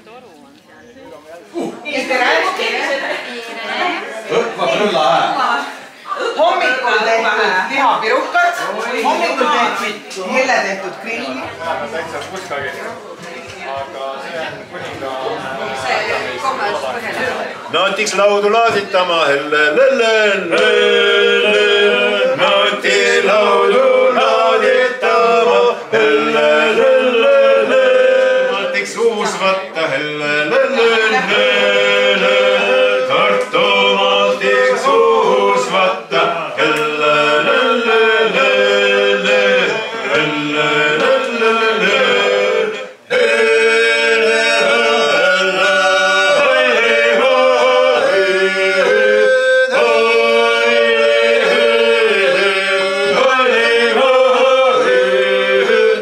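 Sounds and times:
men singing unaccompanied: 11.4 - 56.0.

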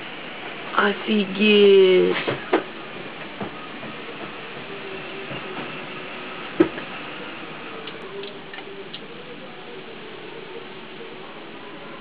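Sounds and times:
sharp click: 7.8 - 9.0.

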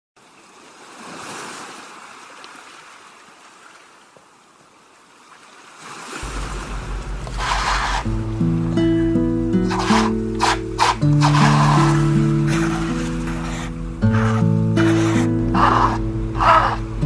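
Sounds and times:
ocean surf washing in: 5.9 - 17.0
background music with bass line: 6.2 - 17.0.

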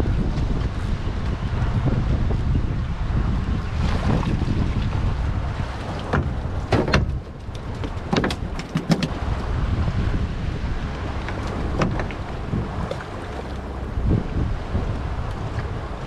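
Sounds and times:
water washing against boat: 0.0 - 16.0
wind buffeting microphone: 0.0 - 16.0
sharp clicks and knocks: 6.0 - 9.2.

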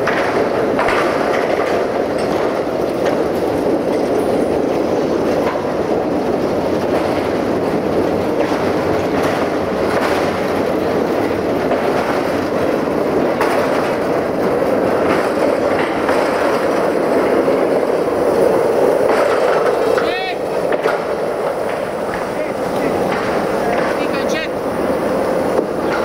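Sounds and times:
train wheels rumbling on track: 0.0 - 26.0
wheels clacking over rail joints: 0.0 - 26.0.

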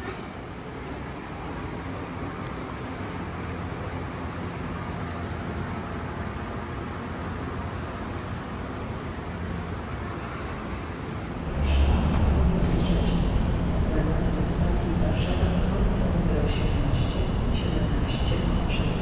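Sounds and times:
station concourse hum: 0.0 - 19.0
loud deep sound: 11.4 - 19.0.

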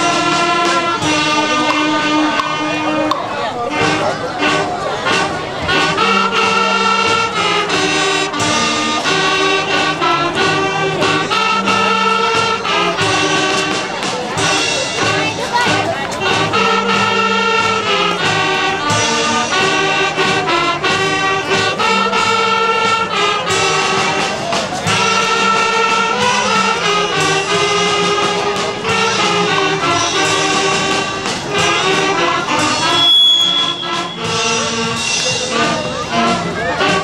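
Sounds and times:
choir singing with accompaniment: 3.8 - 37.0
short high steady tone: 32.8 - 35.0.

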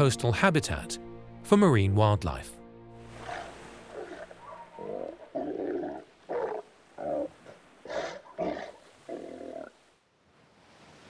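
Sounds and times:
seals calling: 3.1 - 9.9.

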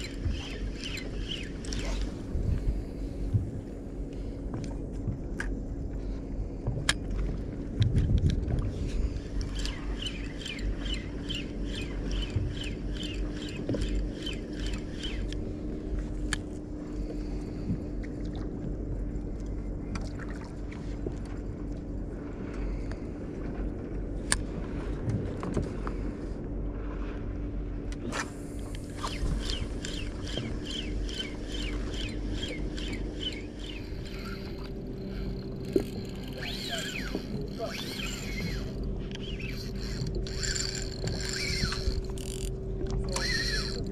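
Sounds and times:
fishing reel ticking: 0.0 - 2.0, 9.4 - 15.5, 28.7 - 43.9
boat engine idling: 0.0 - 43.9.

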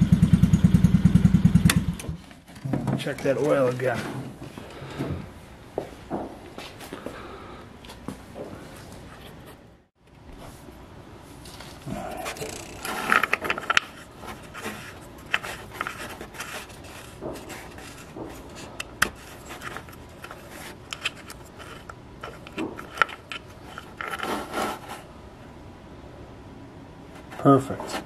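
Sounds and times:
plastic cap rubbing and clicking: 12.2 - 25.0.

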